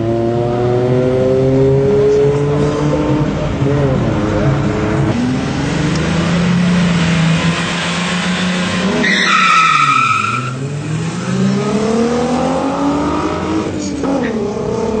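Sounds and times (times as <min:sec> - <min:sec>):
car engine revving: 0:00.0 - 0:15.0
tire squealing: 0:05.9 - 0:15.0.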